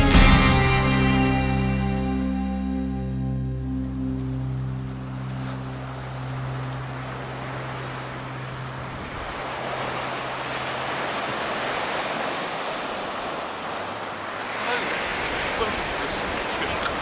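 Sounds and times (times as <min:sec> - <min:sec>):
background music: 0:00.0 - 0:08.1
waves breaking on beach: 0:03.9 - 0:17.0.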